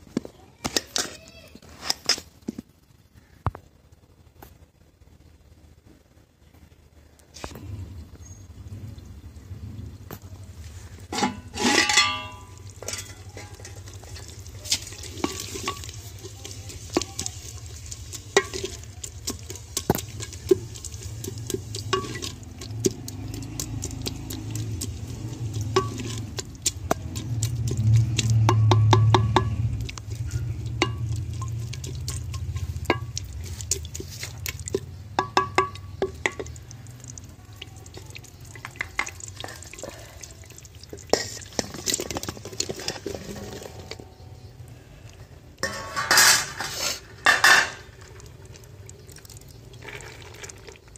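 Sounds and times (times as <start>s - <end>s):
onions frying in oil: 7.4s - 50.9s
spoon scraping a clay pot: 11.2s - 36.6s, 40.9s - 44.2s, 45.6s - 47.9s
low rumble: 19.6s - 33.7s.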